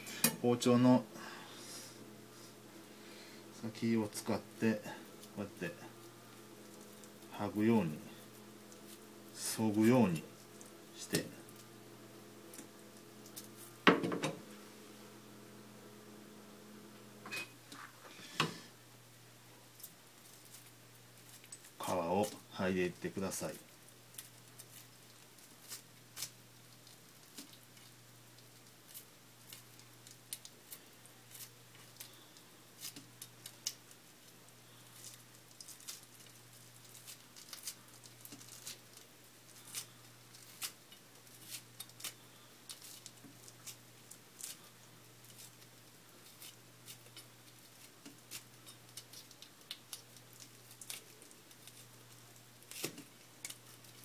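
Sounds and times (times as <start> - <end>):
low steady hum: 0.0 - 54.0.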